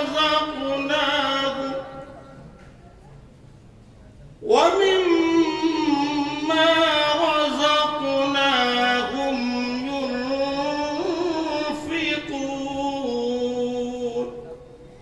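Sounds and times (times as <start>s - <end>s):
man chanting melodic recitation: 0.0s - 2.2s, 4.4s - 14.7s.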